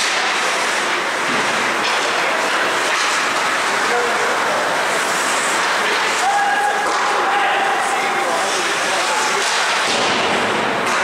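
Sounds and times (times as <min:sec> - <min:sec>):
sticks hitting puck: 0:00.0 - 0:03.8, 0:05.5 - 0:11.0
skates scraping ice: 0:00.0 - 0:11.0
faint shouts: 0:06.2 - 0:08.2.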